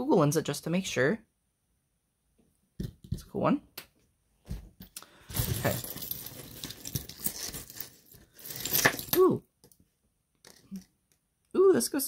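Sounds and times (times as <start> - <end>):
metal jewelry jangling: 5.3 - 9.4.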